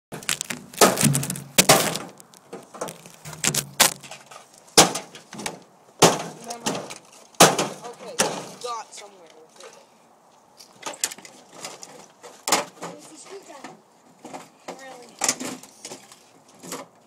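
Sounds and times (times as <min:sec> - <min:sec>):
microwave ovens being smashed: 0:00.2 - 0:02.2, 0:04.8 - 0:08.6.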